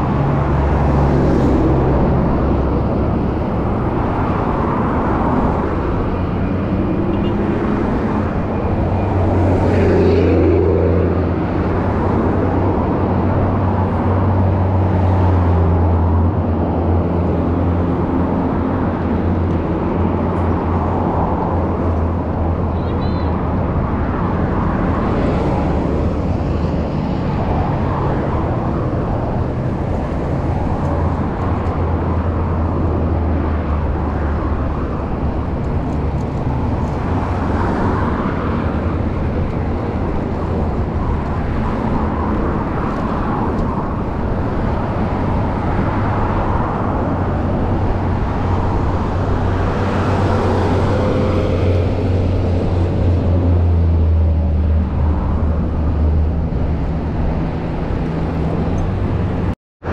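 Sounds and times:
roadside traffic rushing: 0.0 - 59.9
vehicles passing: 0.0 - 59.9.

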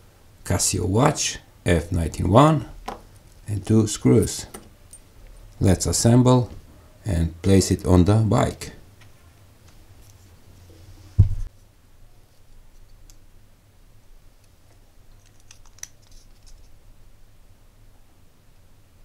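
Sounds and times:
dull thump: 11.2 - 11.5
plastic clicks and scraping: 15.1 - 16.7.

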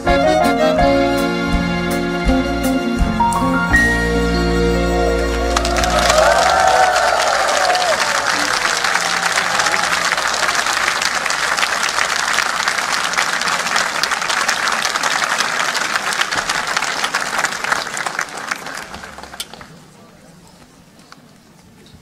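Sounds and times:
large audience applauding: 5.0 - 19.9.

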